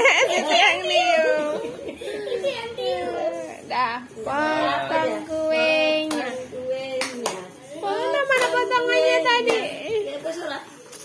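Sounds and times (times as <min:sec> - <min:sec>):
family singing birthday song: 0:00.0 - 0:10.7
hand claps: 0:06.0 - 0:06.4, 0:07.0 - 0:07.6, 0:08.2 - 0:08.8, 0:09.4 - 0:09.8.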